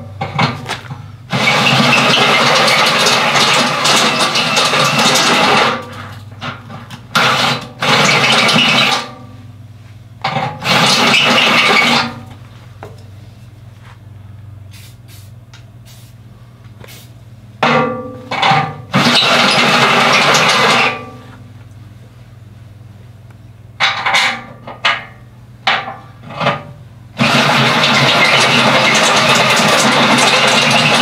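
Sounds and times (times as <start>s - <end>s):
power drill boring steel: 27.2s - 31.0s.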